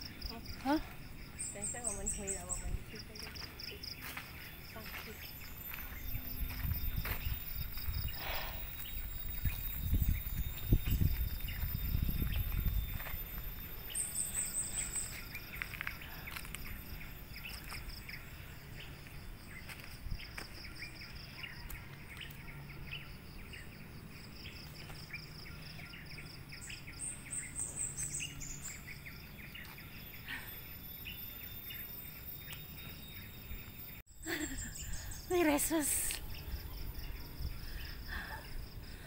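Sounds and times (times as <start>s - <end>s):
insects buzzing: 0.0s - 21.6s
birds calling: 0.0s - 39.0s.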